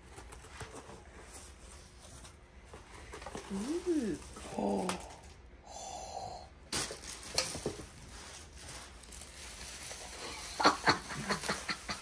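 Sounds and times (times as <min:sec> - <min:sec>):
packaging rustling and crackling: 0:06.7 - 0:12.0.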